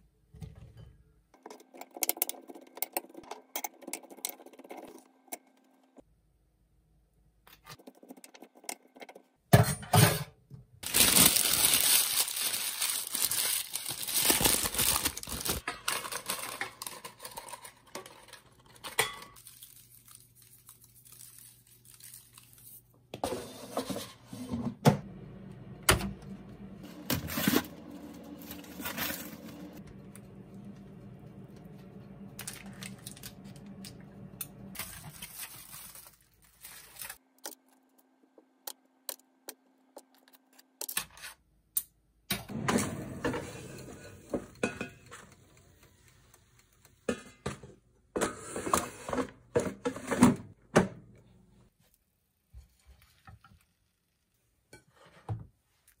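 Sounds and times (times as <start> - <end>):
baking paper crinkling and tearing: 10.8 - 23.0, 26.8 - 29.8, 34.8 - 37.2.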